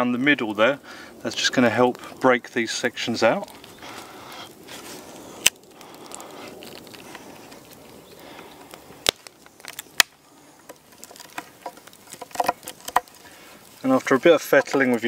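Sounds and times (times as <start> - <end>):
sharp wood snaps: 3.2 - 15.0
knife shaving wood: 3.4 - 15.0.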